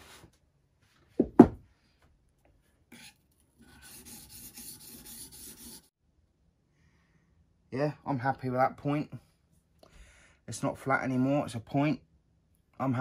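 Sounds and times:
knife scraping on whetstone: 2.9 - 5.8.

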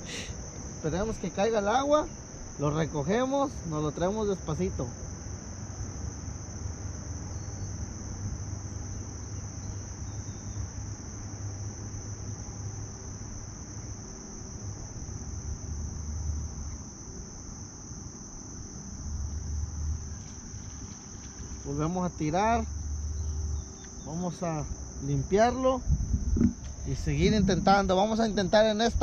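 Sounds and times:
insects chirring: 0.0 - 29.0
low rumble: 25.8 - 29.0.

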